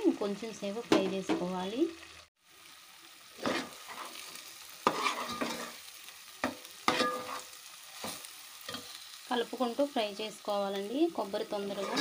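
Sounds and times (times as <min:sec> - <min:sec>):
faint sizzle: 0:00.0 - 0:12.0
metal spoon stirring and scraping: 0:03.4 - 0:09.0, 0:11.6 - 0:12.0.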